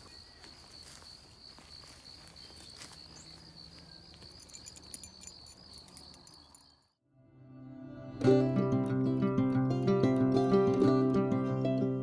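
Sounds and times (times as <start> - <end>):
crickets chirping: 0.0 - 7.0.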